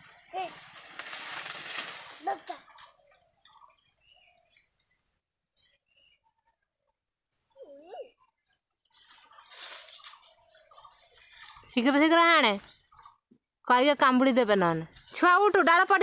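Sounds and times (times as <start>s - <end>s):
small birds chirping: 0.0s - 16.0s
rustling noise: 0.4s - 2.5s, 9.0s - 10.2s.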